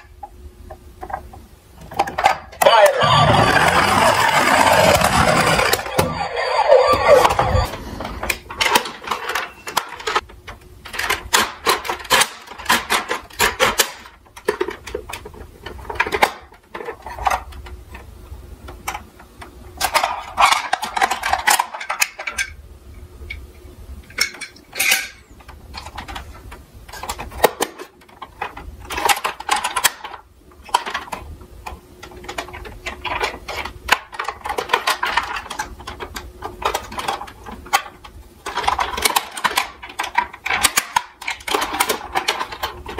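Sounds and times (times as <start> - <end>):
toy cars clattering: 1.8 - 7.7, 8.4 - 10.2, 10.8 - 18.1, 19.8 - 22.6, 24.1 - 42.9.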